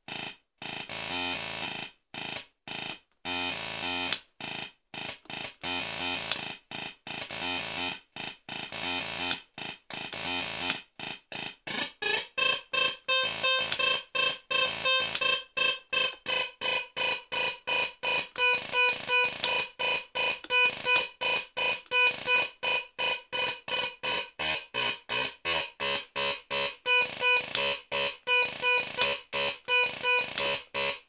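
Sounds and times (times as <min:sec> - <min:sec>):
pulsing electronic synth tones: 0:12.3 - 0:31.0.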